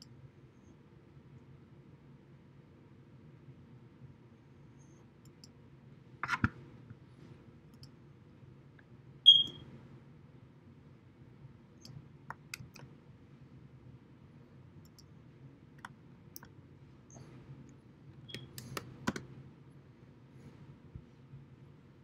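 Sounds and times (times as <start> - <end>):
mouse clicks: 14.8 - 15.1, 15.8 - 17.3, 18.3 - 19.3
keyboard typing: 18.3 - 19.3.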